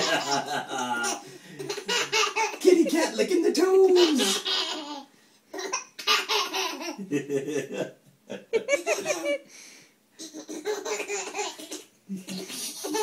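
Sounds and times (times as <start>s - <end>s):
adults laughing: 0.0s - 1.9s, 7.0s - 9.4s
baby laughing: 0.0s - 2.9s, 3.8s - 7.1s, 8.6s - 9.4s, 10.2s - 13.0s.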